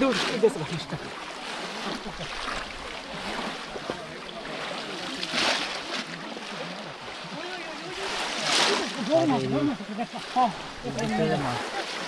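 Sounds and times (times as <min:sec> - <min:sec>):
water splashing and sloshing: 0:00.0 - 0:12.0.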